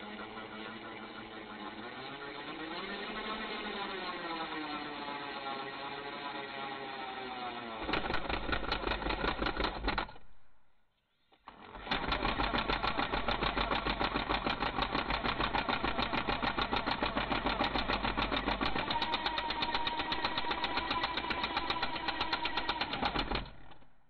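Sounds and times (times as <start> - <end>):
impact driver rattling: 7.8 - 10.4, 11.7 - 24.0.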